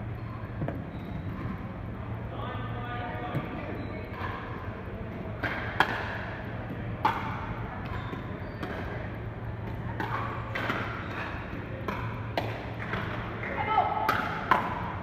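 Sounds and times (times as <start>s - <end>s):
steady low hum: 0.0s - 15.0s
paddles hitting plastic ball: 5.3s - 15.0s.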